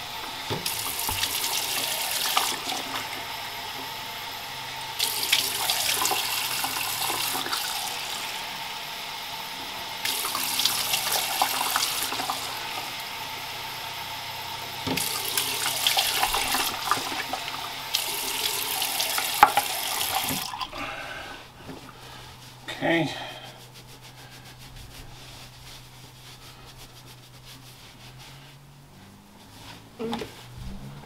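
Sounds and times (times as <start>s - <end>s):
sink tap running: 0.0s - 22.2s.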